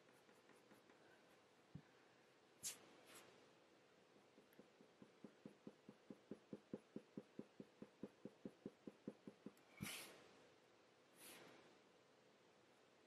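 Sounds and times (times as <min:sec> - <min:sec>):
coloured pencil strokes on paper: 0:00.0 - 0:01.4.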